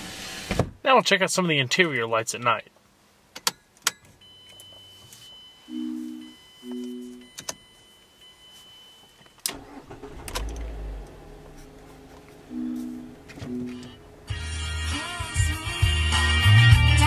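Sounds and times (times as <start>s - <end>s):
dashboard electronic chimes: 4.2s - 9.4s, 11.1s - 14.4s
car engine cranking and running: 9.4s - 16.2s.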